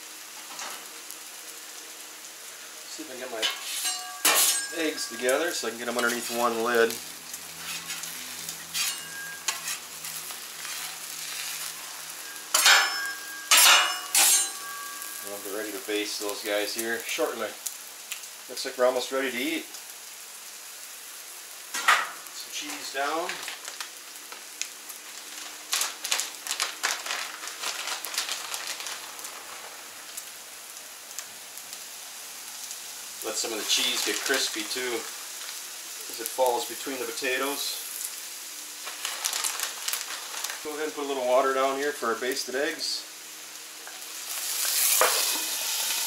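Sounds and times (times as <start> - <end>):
food sizzling on griddle: 0.0 - 46.0
metal spatula scraping griddle: 3.4 - 6.5, 7.5 - 15.3, 44.7 - 46.0
crackles and pops: 4.6 - 18.9, 21.7 - 41.0.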